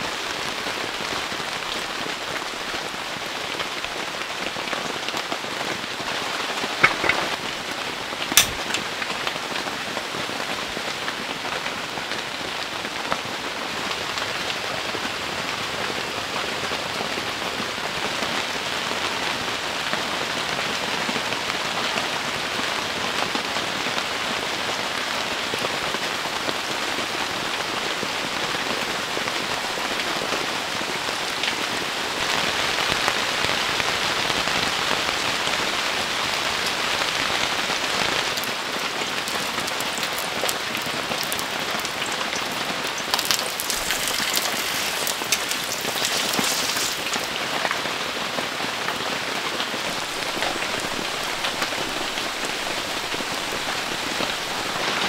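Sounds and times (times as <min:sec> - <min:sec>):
heavy rain pattering on a tent: 0:00.0 - 0:55.0
batter frying on a griddle: 0:33.1 - 0:47.6.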